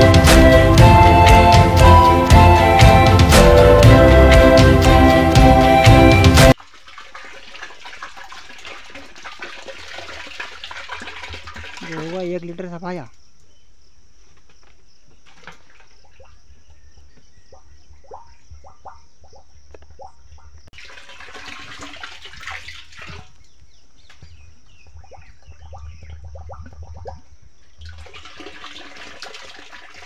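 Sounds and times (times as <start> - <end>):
water pouring: 6.3 - 12.7, 20.7 - 23.6, 25.8 - 30.0
water gurgling in plastic bottle: 6.6 - 12.7, 20.8 - 23.5, 25.0 - 30.0.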